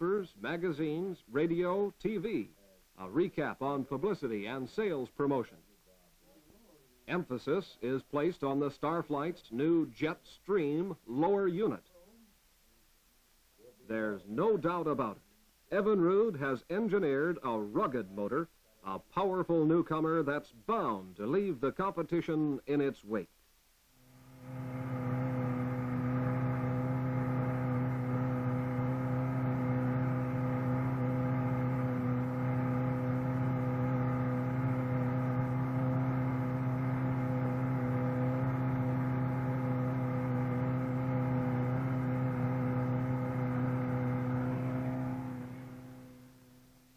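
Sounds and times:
outboard motor droning: 0:24.1 - 0:46.7.

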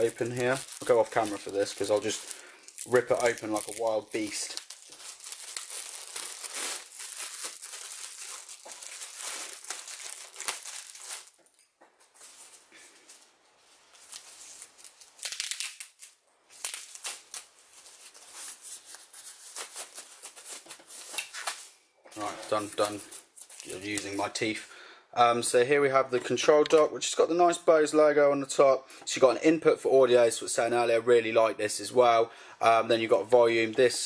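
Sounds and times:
packaging crinkling and tearing: 0:00.0 - 0:12.6, 0:13.9 - 0:24.3.

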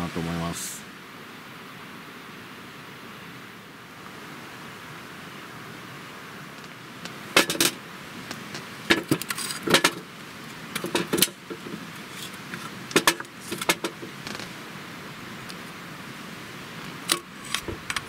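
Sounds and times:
steady hiss: 0:00.0 - 0:18.0
logs knocking on metal grate: 0:07.4 - 0:07.7, 0:08.9 - 0:10.0, 0:10.8 - 0:11.8, 0:13.0 - 0:14.4.

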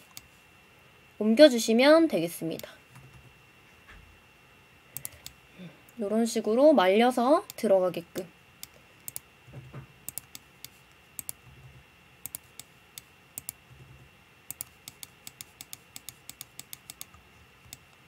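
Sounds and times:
mouse and keyboard clicking: 0:05.0 - 0:05.4, 0:10.1 - 0:11.4, 0:12.2 - 0:13.6, 0:14.5 - 0:18.0.

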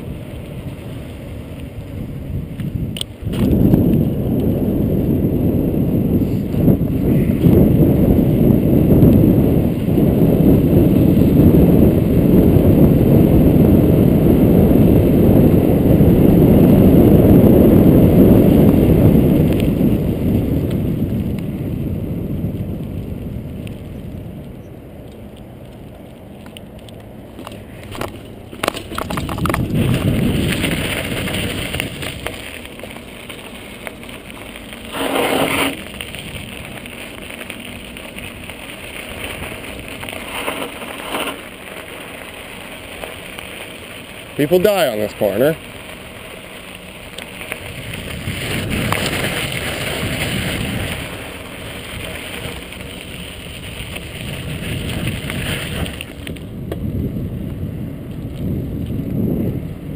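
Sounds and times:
wind noise on microphone: 0:00.0 - 0:24.8, 0:26.7 - 0:59.9
tyre rumble and crackle: 0:00.0 - 0:59.9
tyres crunching on gravel: 0:18.6 - 0:59.2.

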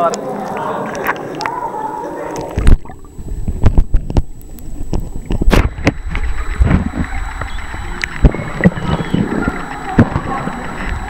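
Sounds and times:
underwater clicks and knocks: 0:02.4 - 0:11.0
underwater moving water rumble: 0:02.4 - 0:11.0.

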